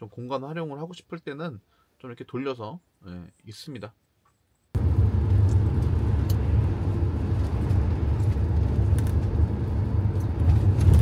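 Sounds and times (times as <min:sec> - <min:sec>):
vehicle engine and road rumble: 0:04.8 - 0:11.0.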